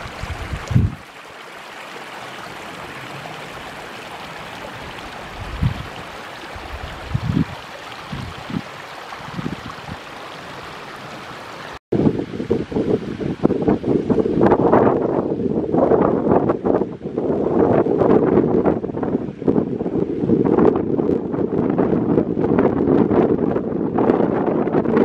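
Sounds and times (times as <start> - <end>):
wind buffeting microphone: 0.0 - 1.1, 1.9 - 11.2, 11.9 - 25.0
stream running over rocks: 0.0 - 11.8.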